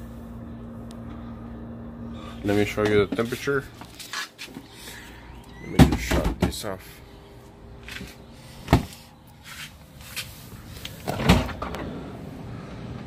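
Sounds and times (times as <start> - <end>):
freezer drawer thud and rattle: 5.7 - 6.6, 8.7 - 9.0, 11.0 - 11.9.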